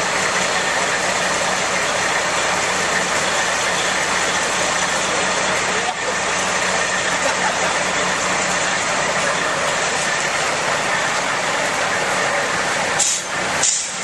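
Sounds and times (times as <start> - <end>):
truck engines idling: 0.0 - 14.0
short air hisses: 13.0 - 14.0.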